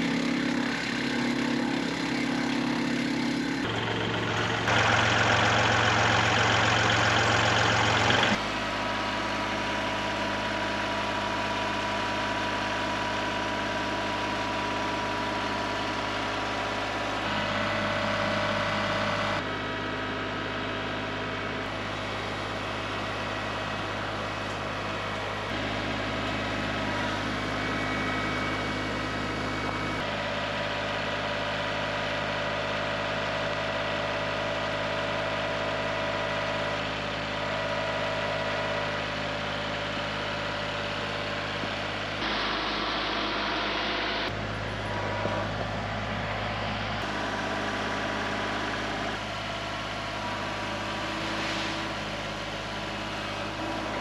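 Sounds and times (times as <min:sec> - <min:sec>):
harsh machine noise: 0:00.0 - 0:54.0
tractor diesel engine running: 0:00.0 - 0:54.0.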